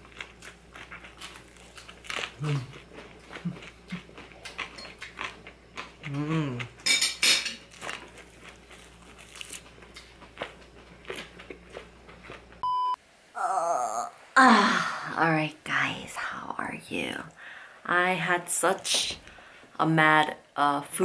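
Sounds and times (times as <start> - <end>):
chewing and biting: 0.0 - 6.8, 7.7 - 12.5
person humming: 2.4 - 2.7, 6.1 - 6.8, 13.4 - 15.1
dishes and utensils clinking: 6.8 - 7.6
short electronic beep: 12.6 - 13.0.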